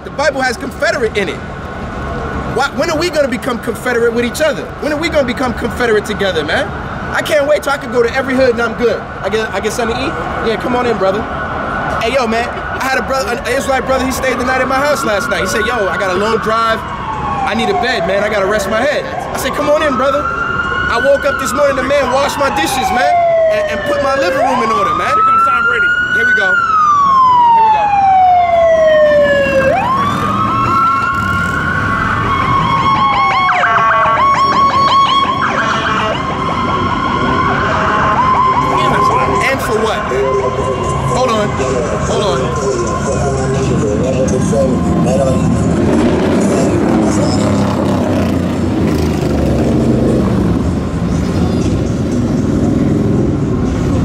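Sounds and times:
fire truck siren wailing: 0.0 - 54.0
siren fast yelp: 10.6 - 45.4.

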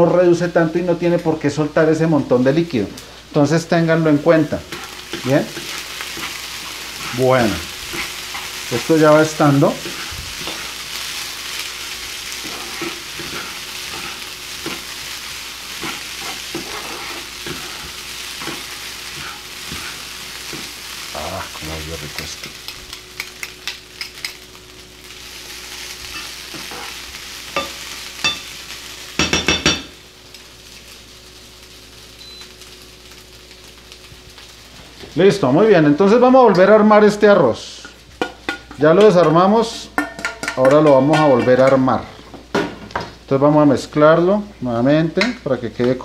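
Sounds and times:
food sizzling in a frying pan: 0.0 - 46.0
utensil scraping and tapping pan: 38.2 - 41.8.

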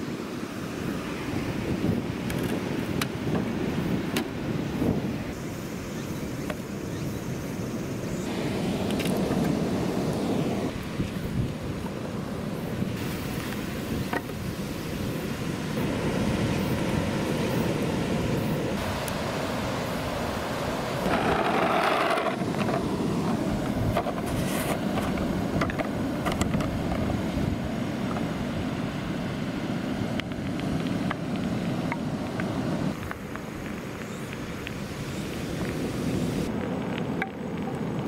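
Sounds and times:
plastic balls rolling on pavement: 21.1 - 27.1.

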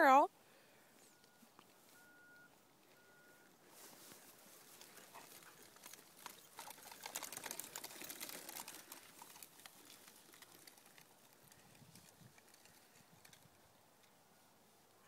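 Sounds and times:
footsteps through dry grass: 3.6 - 13.2.

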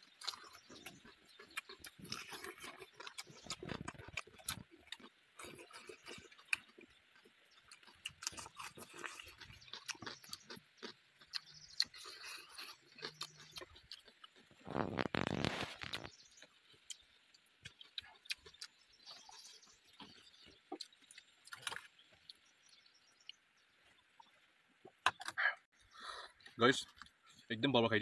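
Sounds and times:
person chewing and lip-smacking: 0.0 - 16.1, 16.8 - 22.4.

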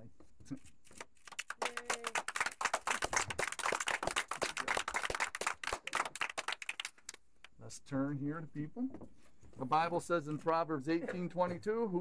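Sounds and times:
people applauding: 1.2 - 7.2.

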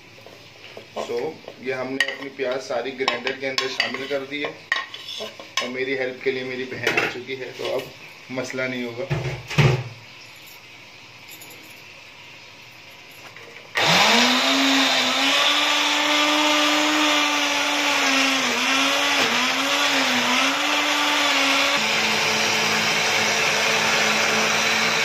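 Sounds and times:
electric blender grinding: 13.8 - 25.0.

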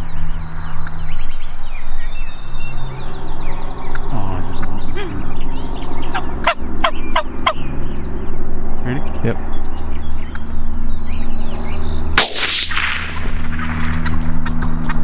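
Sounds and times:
turkeys gobbling: 6.1 - 7.6.

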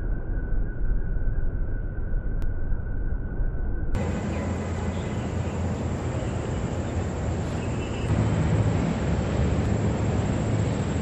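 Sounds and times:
city background rumble: 4.0 - 11.0.

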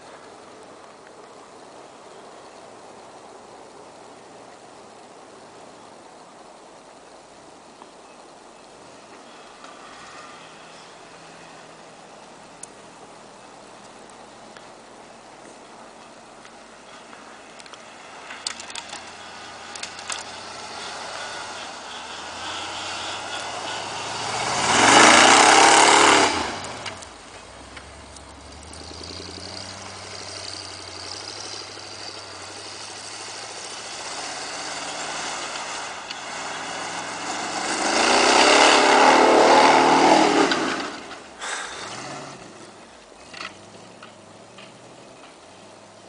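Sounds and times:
truck engine revving under load: 17.9 - 45.8.

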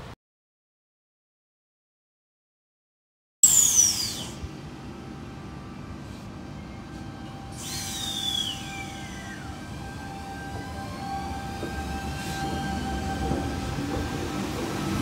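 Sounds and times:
high brake squeal falling in pitch: 3.4 - 4.4, 6.6 - 13.7
electric train rolling: 3.6 - 15.0.

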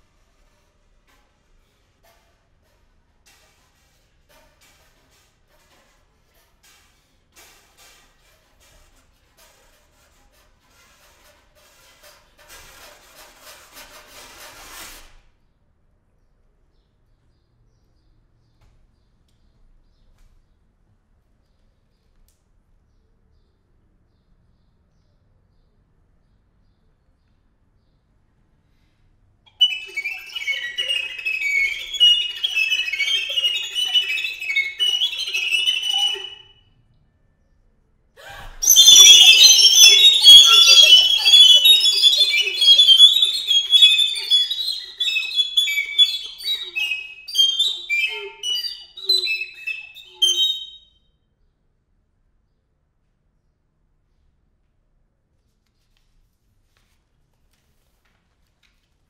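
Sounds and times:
faint short high chirps: 29.5 - 36.6, 38.3 - 51.0
high recorder whistles: 29.5 - 36.6, 38.2 - 50.9.

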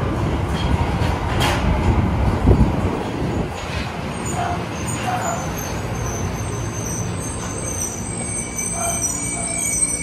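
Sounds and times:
subway train rumbling: 0.0 - 10.0
high brake squeals: 4.2 - 10.0.

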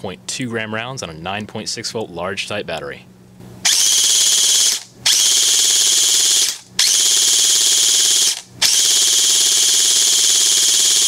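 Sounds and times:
electric airsoft gun firing: 3.6 - 11.0.

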